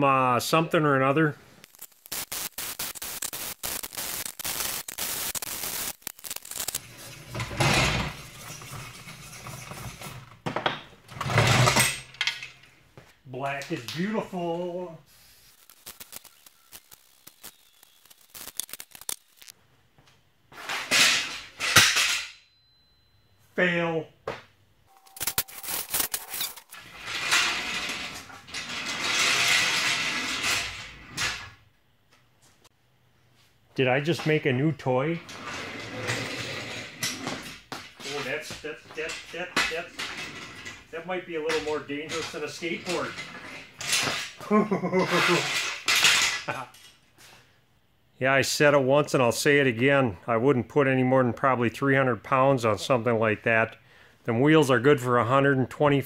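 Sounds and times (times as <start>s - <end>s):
electric arc welding crackling: 1.6s - 7.1s, 15.1s - 19.6s, 25.0s - 27.8s
loud bursts of noise: 1.7s - 6.8s.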